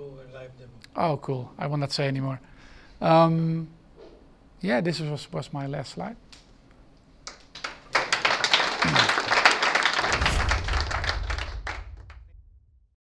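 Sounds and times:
audience applauding: 7.3s - 12.2s.

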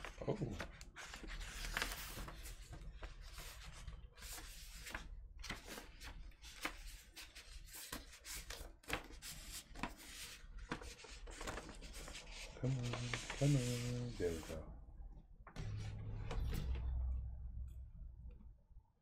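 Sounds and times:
paper sleeve rustling and scraping: 0.8s - 14.6s.

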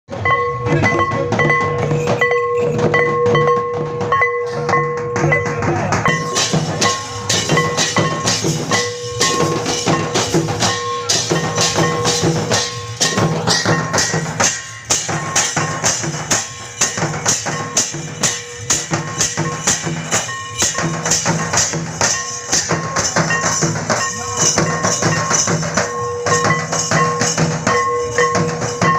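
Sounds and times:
cymbals shimmering: 0.1s - 28.9s
drums beaten in fast rhythm: 0.1s - 28.9s.

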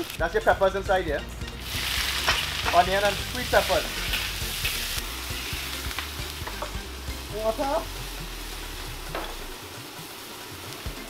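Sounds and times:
vegetables sizzling in a wok: 0.0s - 0.6s, 1.3s - 11.0s
utensil scraping a wok: 1.6s - 6.8s.

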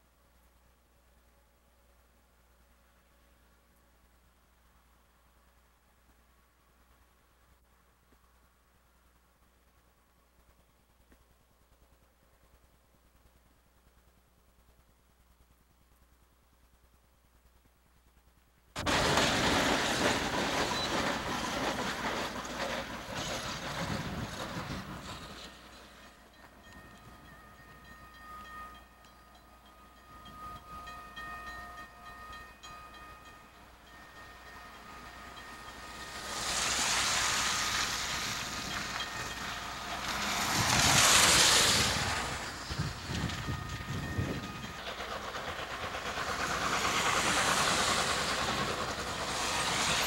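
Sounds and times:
freight train rolling past: 18.3s - 50.0s
tyres hissing on wet road: 18.8s - 26.5s, 34.0s - 44.2s, 44.9s - 50.0s.

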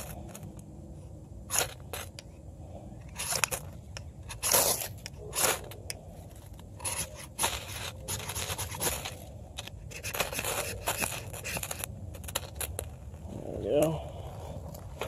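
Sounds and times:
knife scraping ferrocerium rod: 3.0s - 12.9s.

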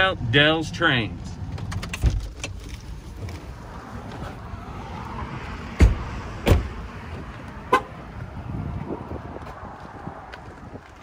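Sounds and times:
car and street noise: 0.0s - 11.0s
car doors thumping shut: 5.7s - 6.8s.

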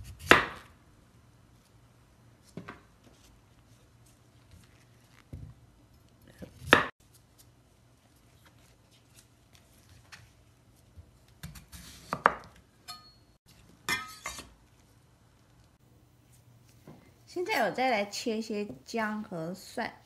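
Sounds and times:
knife cutting radish on board: 0.0s - 0.7s.

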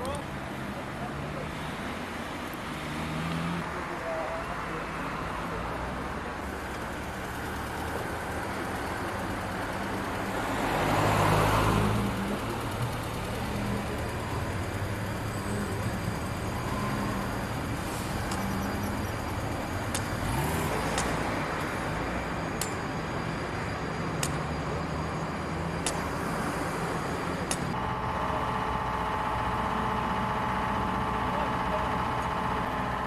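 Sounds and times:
cars passing: 0.0s - 33.0s
sharp clicks: 19.9s - 21.7s, 24.2s - 24.5s, 25.8s - 26.1s, 27.4s - 27.8s.

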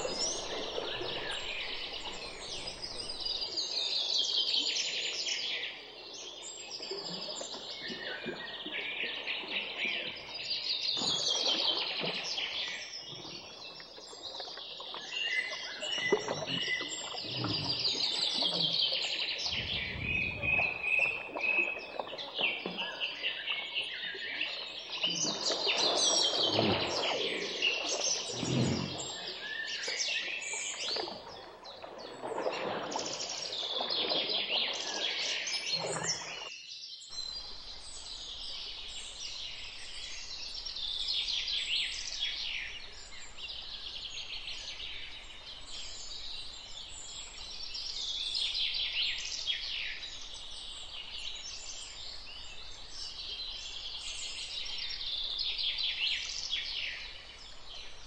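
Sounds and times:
small birds chirping and singing: 14.9s - 31.1s
deeper irregular sounds: 19.4s - 21.5s, 28.3s - 29.4s.

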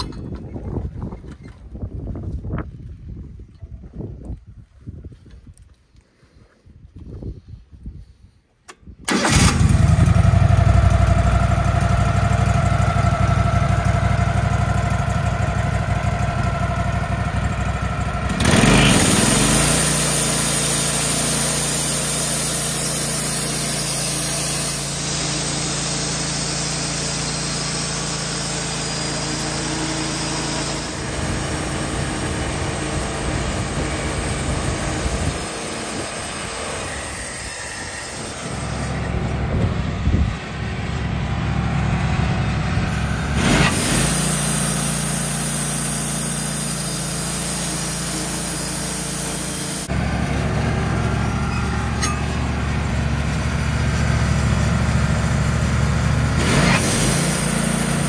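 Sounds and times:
gasoline engine running: 9.1s - 58.0s
band saw cutting log: 18.2s - 39.4s, 43.3s - 53.0s, 56.4s - 58.0s.

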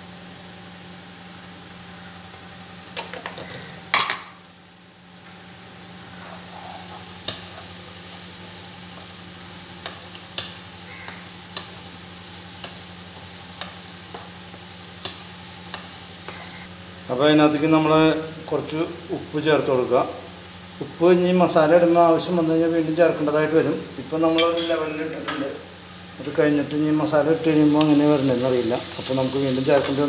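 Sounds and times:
onions sizzling in oil: 0.0s - 30.0s
spatula scraping a pan: 6.1s - 7.8s.

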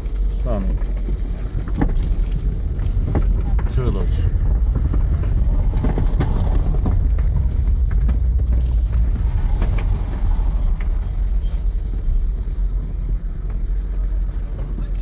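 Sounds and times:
car engine and road noise: 0.0s - 15.0s.

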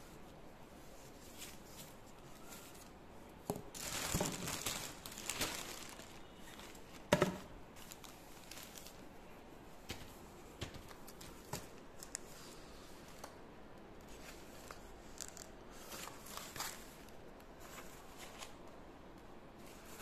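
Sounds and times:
plastic packaging crinkling: 3.6s - 9.1s.

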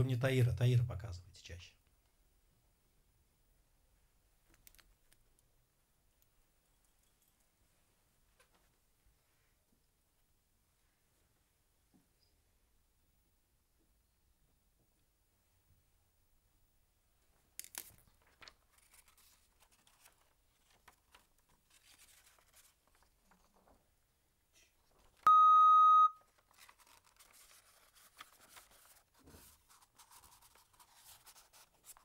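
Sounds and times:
paper rustling: 17.6s - 23.8s, 26.3s - 32.0s
electronic beep: 25.3s - 26.2s.

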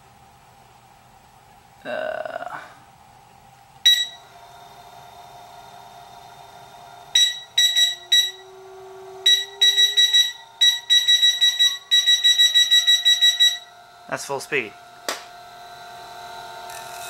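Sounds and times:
electric motor humming: 4.2s - 7.2s, 8.0s - 17.0s
electronic beeps: 7.2s - 8.4s, 9.3s - 13.7s.

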